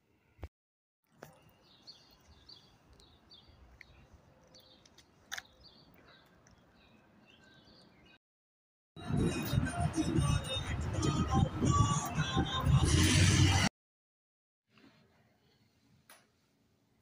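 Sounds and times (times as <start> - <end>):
small birds chirping: 1.2 - 8.2.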